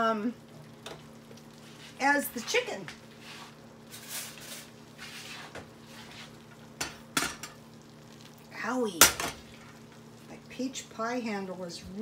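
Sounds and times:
cookware clattering: 0:06.8 - 0:07.6.

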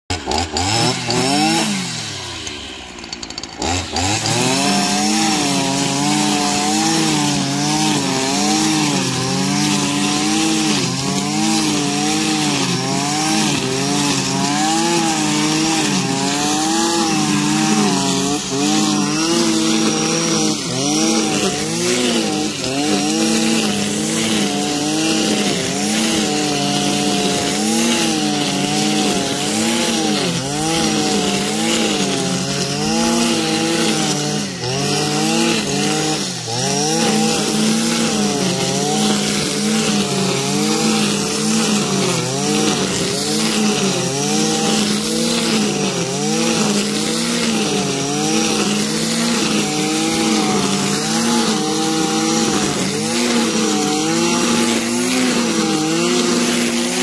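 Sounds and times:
brushcutter engine cutting grass: 0:00.0 - 0:57.0.

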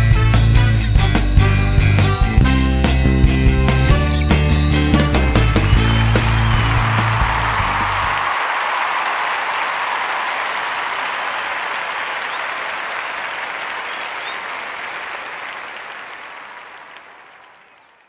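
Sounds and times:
backing track music: 0:00.0 - 0:08.2
crowd applauding: 0:03.5 - 0:18.0.

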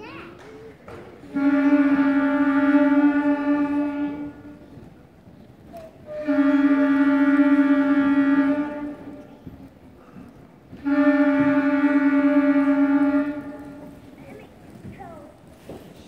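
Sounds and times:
wind band playing long note: 0:01.2 - 0:04.8, 0:06.0 - 0:09.5, 0:10.7 - 0:14.4.

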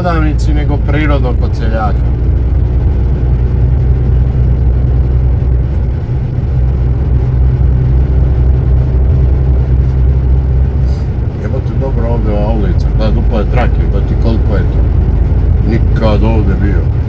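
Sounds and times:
lorry engine and road noise: 0:00.0 - 0:17.0.

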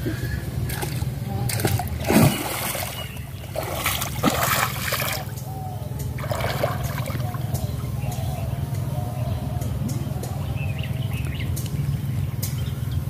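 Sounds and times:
water trickling and splashing: 0:00.6 - 0:07.9.

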